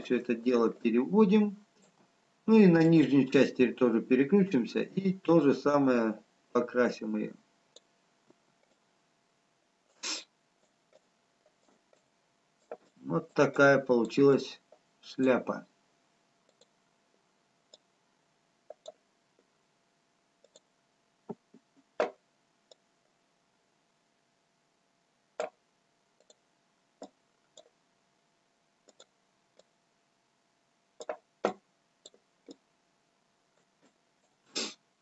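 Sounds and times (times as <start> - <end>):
computer mouse clicks: 16.5 - 16.8, 18.7 - 19.0, 20.4 - 20.7, 26.2 - 26.4, 27.0 - 27.8, 28.8 - 29.7, 31.0 - 32.6.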